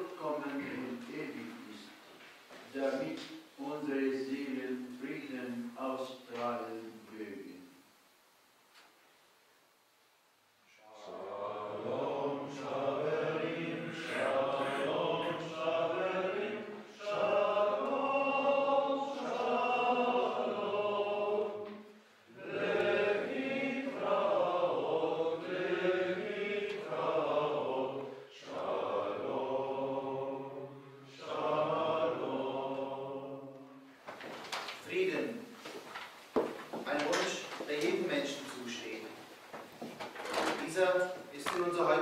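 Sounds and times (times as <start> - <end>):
men chanting liturgy: 10.7 - 33.8.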